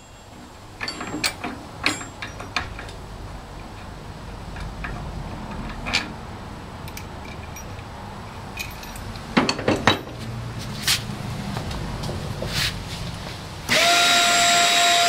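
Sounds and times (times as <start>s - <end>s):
wrench clanking against metal: 0.0s - 6.2s, 6.8s - 10.3s.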